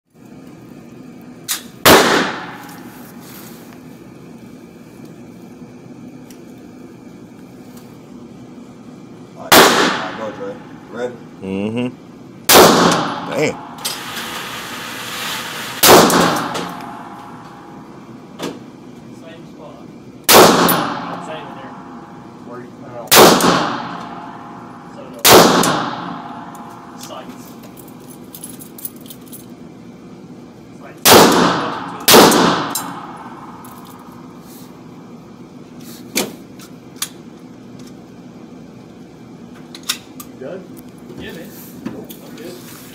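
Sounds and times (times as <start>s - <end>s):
steady low hum: 0.1s - 42.9s
loud gunshot ringing indoors: 1.8s - 3.0s, 9.5s - 10.6s, 12.5s - 14.2s, 15.8s - 17.7s, 20.3s - 22.2s, 23.0s - 24.6s, 25.2s - 27.0s, 31.0s - 33.7s
pistol shots echoing: 1.9s - 2.7s, 9.5s - 10.5s, 12.5s - 13.8s, 15.8s - 17.6s, 20.3s - 22.0s, 23.1s - 27.0s, 31.0s - 34.2s.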